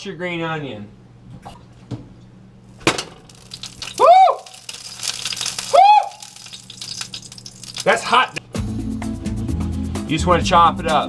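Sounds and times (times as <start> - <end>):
tap water running: 2.8 - 8.4
high-pitched whoops: 4.0 - 4.6, 5.6 - 6.5.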